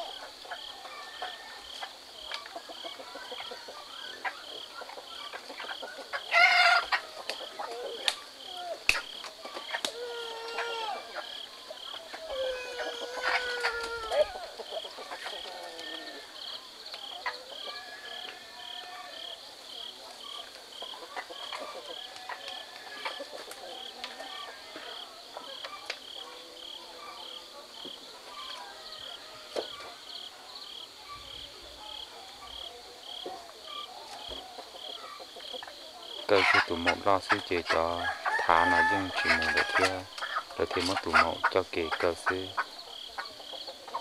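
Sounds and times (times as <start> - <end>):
chickens clucking: 0.0 - 44.0
loud chicken call: 6.2 - 7.0, 9.8 - 16.5, 36.3 - 43.3.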